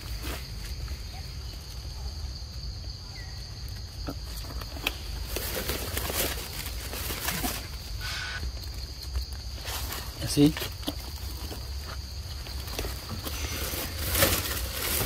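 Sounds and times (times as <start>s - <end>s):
high insect drone: 0.0s - 15.0s
rustling in dry leaf litter: 4.3s - 15.0s.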